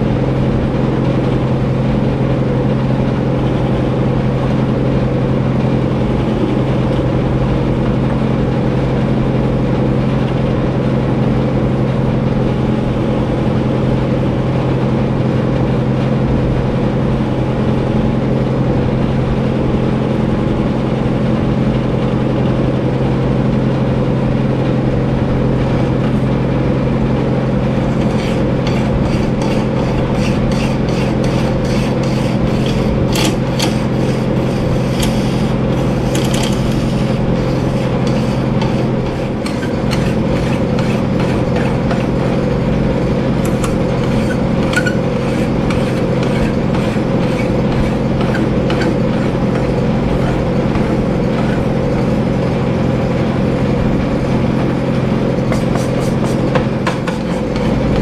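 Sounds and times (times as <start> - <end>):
lathe running: 24.5 - 58.0
hand file scraping metal: 27.8 - 42.6, 43.2 - 52.2, 55.4 - 58.0.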